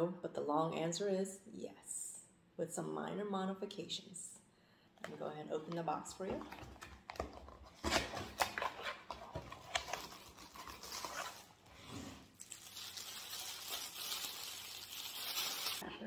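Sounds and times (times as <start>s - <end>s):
plastic bag crinkling: 12.3s - 15.8s.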